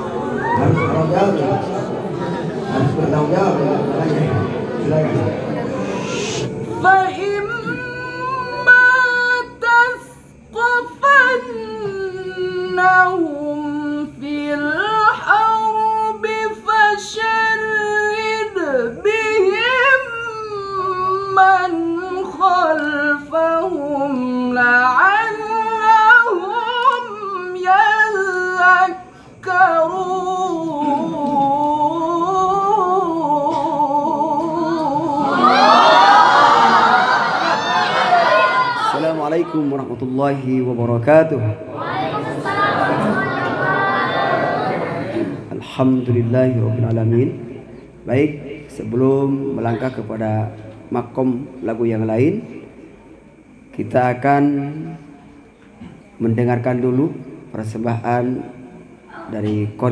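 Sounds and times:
man chanting recitation: 6.0s - 35.2s, 38.8s - 41.7s, 45.3s - 52.6s, 53.7s - 55.1s, 56.2s - 59.9s.

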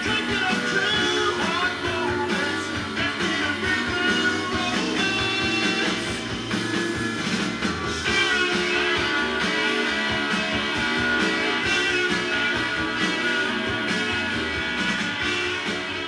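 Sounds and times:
guitar-led rock music from a record: 0.0s - 16.0s.

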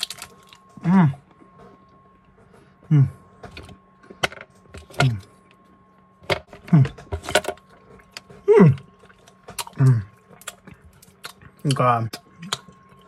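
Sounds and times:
wrapper and mouth crackles: 0.0s - 0.6s
man humming mm: 2.8s - 3.2s, 8.4s - 8.9s.

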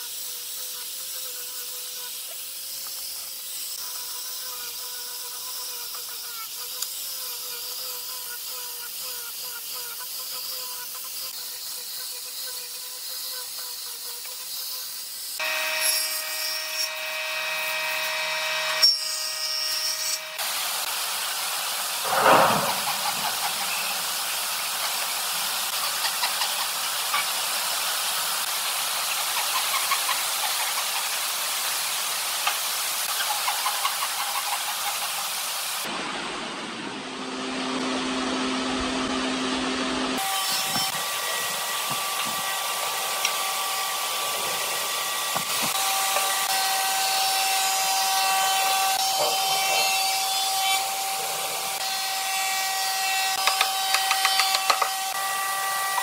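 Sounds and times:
angle grinder sanding wood: 0.0s - 35.9s, 37.7s - 56.0s
table saw running: 15.4s - 20.9s, 36.6s - 56.0s
loud thump: 22.1s - 24.0s
hand saw cutting board: 32.4s - 35.4s, 40.1s - 56.0s.

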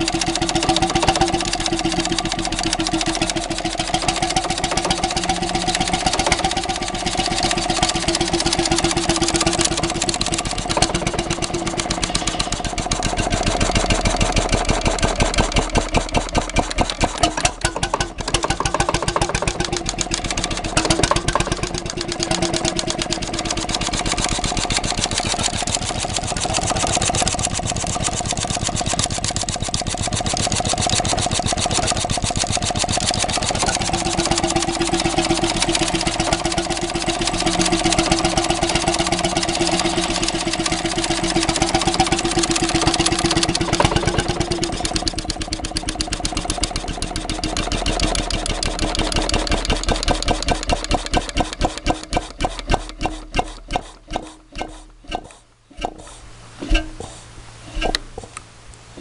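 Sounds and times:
stationary engine running: 0.0s - 57.2s.

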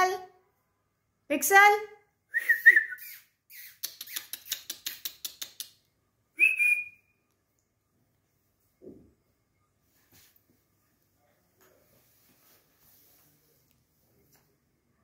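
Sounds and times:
person making mouth clicks: 3.1s - 5.8s
short high whistle: 6.4s - 7.0s.

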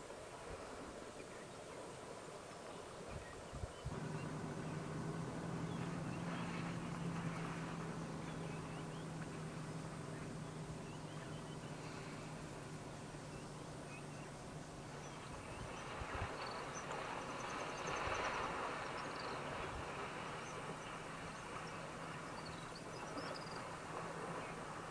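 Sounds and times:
birds chirping: 2.8s - 24.8s
vehicle engine idling: 3.9s - 15.7s.

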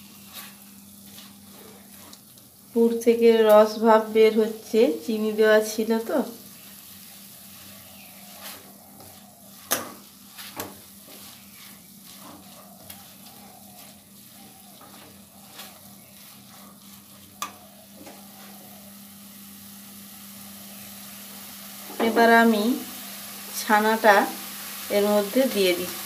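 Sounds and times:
faint sizzle: 0.0s - 26.0s
spatula scraping pan: 0.1s - 2.4s, 6.6s - 18.8s
spatula tapping pan: 8.4s - 18.2s.

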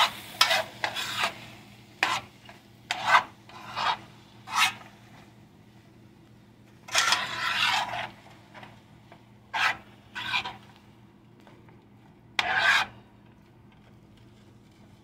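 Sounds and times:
metal utensil scraping frying pan: 0.0s - 4.8s, 6.9s - 8.2s, 9.5s - 10.7s, 12.4s - 13.0s.

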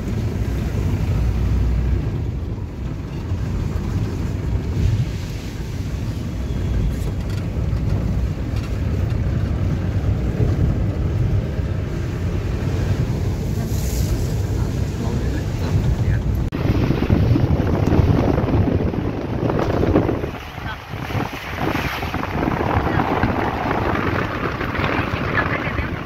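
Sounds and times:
vehicle rumble from inside cabin: 0.0s - 26.0s.

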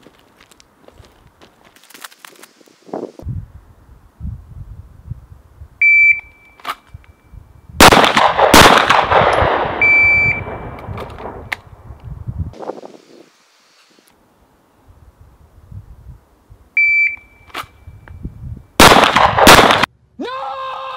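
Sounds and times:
pistol shots echoing: 7.8s - 9.8s, 18.8s - 19.9s
shot timer beeping: 9.8s - 10.5s.

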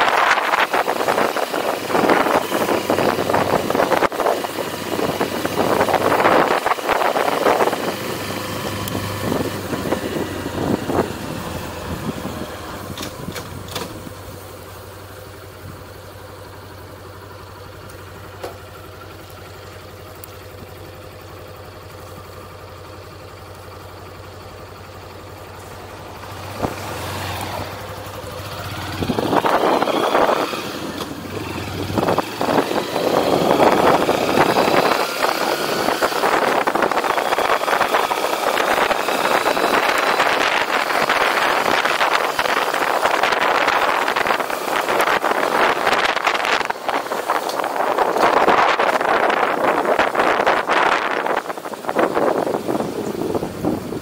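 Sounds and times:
wind noise on microphone: 0.0s - 14.2s, 28.4s - 54.0s
motorcycle engine: 0.0s - 54.0s.

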